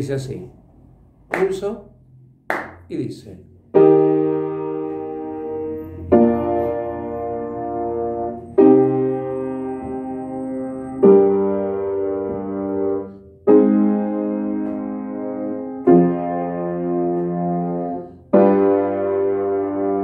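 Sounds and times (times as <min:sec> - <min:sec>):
piano playing block chords: 0:03.6 - 0:20.0.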